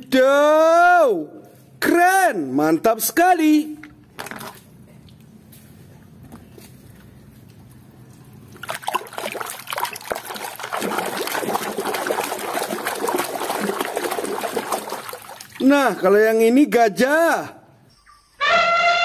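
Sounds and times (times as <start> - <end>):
toys splashing in water: 8.6 - 15.8.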